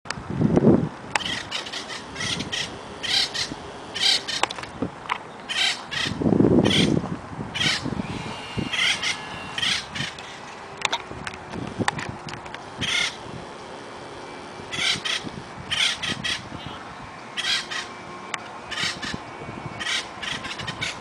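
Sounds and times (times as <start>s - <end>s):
woodpecker chattering calls: 1.2s - 4.6s, 5.3s - 7.0s, 7.6s - 10.5s, 12.8s - 13.2s, 14.7s - 16.8s, 17.4s - 18.0s, 18.7s - 19.2s, 19.8s - 21.0s
low rumble from camera handling: 10.2s - 12.7s.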